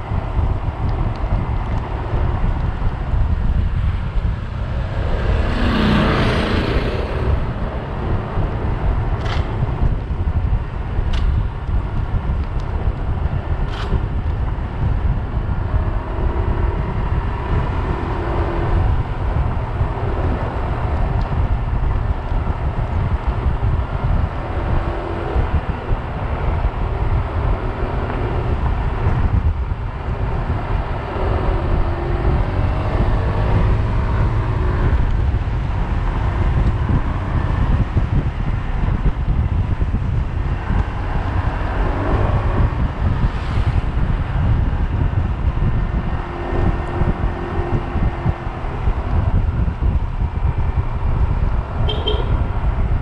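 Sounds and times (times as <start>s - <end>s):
wind buffeting microphone: 0.0s - 53.0s
vehicle passing close by: 1.8s - 10.5s, 23.5s - 53.0s.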